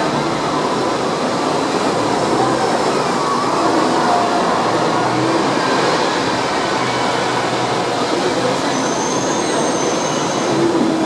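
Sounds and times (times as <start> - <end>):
tram wheels rumbling on rail: 0.0 - 11.0
high wheel squeal: 8.1 - 11.0.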